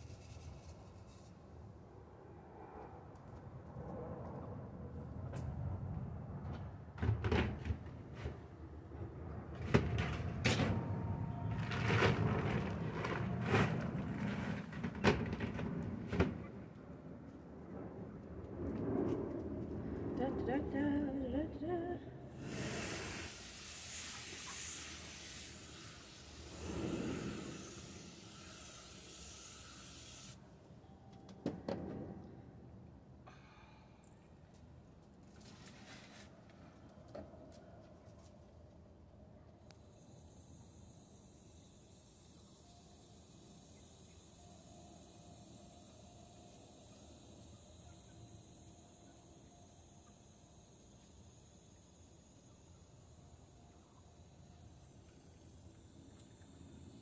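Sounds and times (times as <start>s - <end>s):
hose spraying into a saucer: 22.4s - 30.4s.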